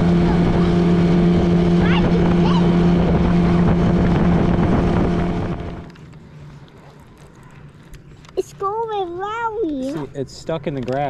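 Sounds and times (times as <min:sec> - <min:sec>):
wind rushing over microphone: 0:00.0 - 0:05.9
outboard motor running: 0:00.0 - 0:08.0.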